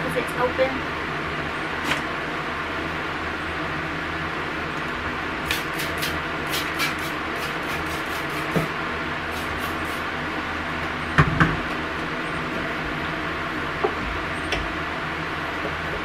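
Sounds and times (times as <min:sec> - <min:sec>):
steady background hum: 0:00.0 - 0:16.0.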